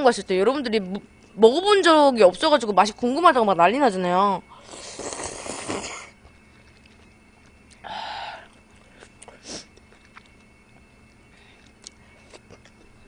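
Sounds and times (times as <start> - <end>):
slurping soup: 4.6 - 6.1
chewing with mouth clicks: 6.6 - 7.8, 8.5 - 10.9, 11.5 - 13.0.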